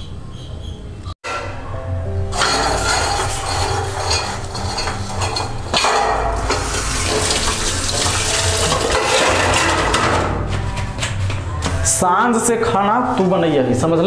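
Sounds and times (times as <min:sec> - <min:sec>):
metal pots clinking: 0:02.3 - 0:11.3.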